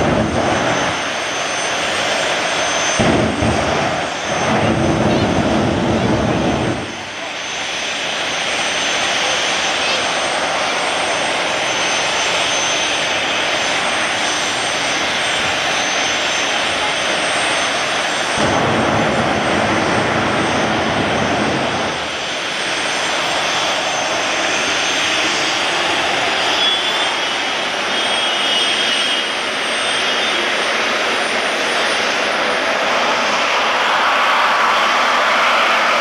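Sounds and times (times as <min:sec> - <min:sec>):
gas turbine whine: 0:00.0 - 0:36.0
low rumble: 0:02.9 - 0:07.0, 0:18.4 - 0:22.1.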